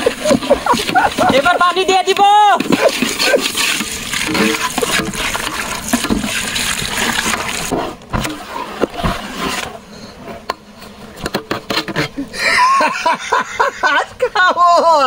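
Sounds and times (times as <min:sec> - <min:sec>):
ladle stirring in metal pot: 0:00.0 - 0:01.8, 0:02.5 - 0:09.8
water pouring into pot: 0:02.8 - 0:07.7.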